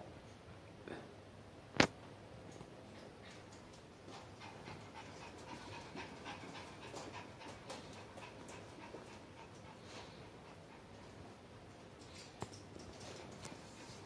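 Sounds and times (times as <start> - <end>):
small dog panting: 2.9 - 11.5, 13.0 - 14.0.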